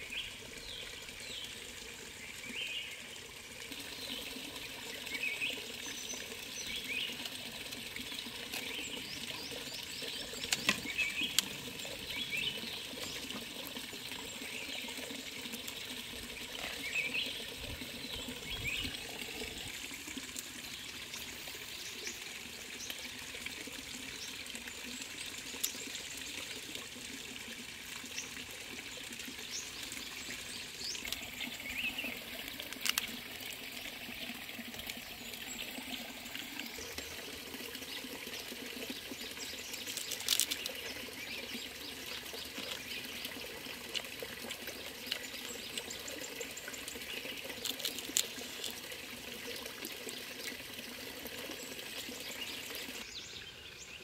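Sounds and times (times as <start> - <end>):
stream trickling: 0.0 - 54.0
birds chirping: 8.0 - 13.4, 14.1 - 23.0, 29.4 - 33.3, 34.1 - 48.8
crab shell cracking: 47.6 - 48.8.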